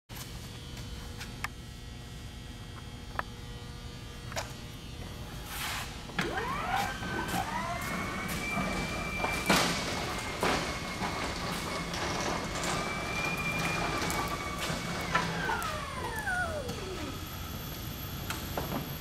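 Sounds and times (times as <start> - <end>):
electric motor whine: 6.1 - 19.0.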